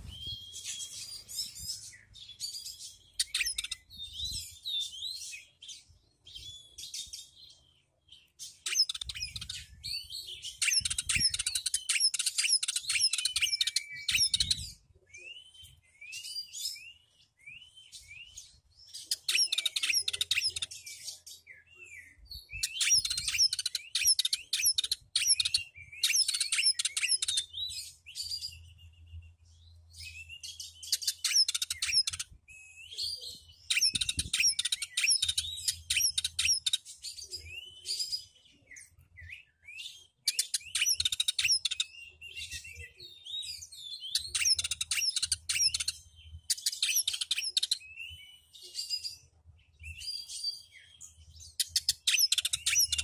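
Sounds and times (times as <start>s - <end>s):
bird singing chattering notes: 0.0s - 5.0s, 8.5s - 14.8s, 19.0s - 20.8s, 22.4s - 27.8s, 30.6s - 32.4s, 33.3s - 36.9s, 40.3s - 43.0s, 44.0s - 48.1s, 50.8s - 53.0s.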